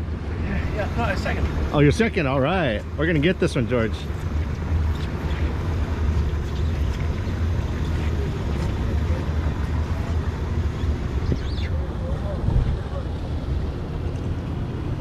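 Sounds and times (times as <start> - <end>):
boat machinery rumble: 0.0 - 15.0
faint voices: 7.5 - 14.7.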